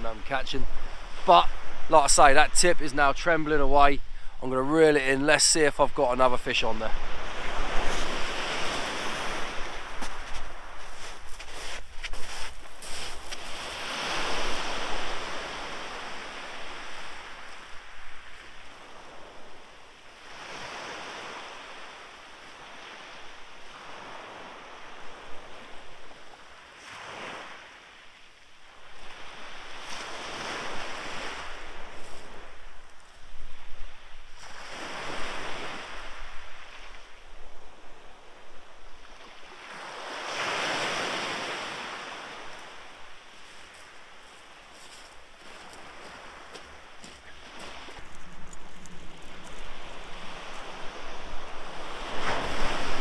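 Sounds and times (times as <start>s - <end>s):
small waves breaking on shingle: 7.4s - 14.8s
wind on microphone: 47.2s - 53.0s.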